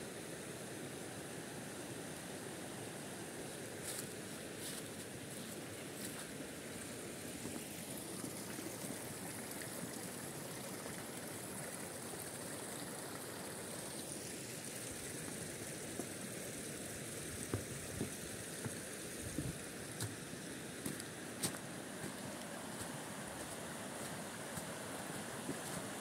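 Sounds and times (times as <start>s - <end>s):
stream running over stones: 0.0s - 26.0s
footsteps on leaves and planks: 3.8s - 6.3s, 20.8s - 24.7s.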